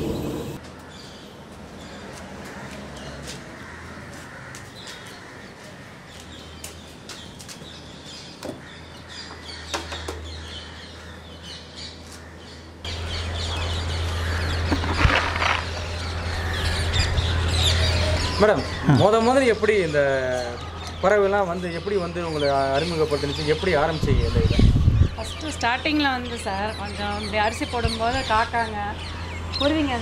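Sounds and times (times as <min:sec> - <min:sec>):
birds chirping and calling: 0:00.0 - 0:30.0.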